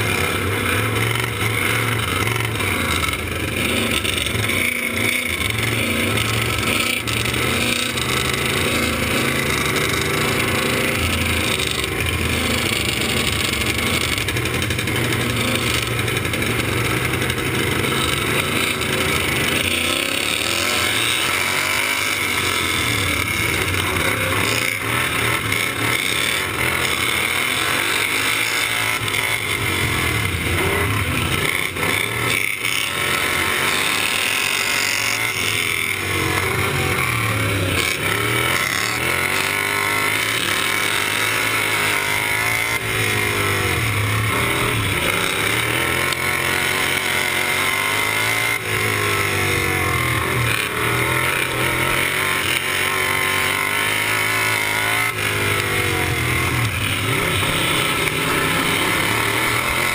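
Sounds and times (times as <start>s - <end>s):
other mower engines nearby: 0.0s - 59.9s
racing mower engine revving: 0.0s - 59.9s.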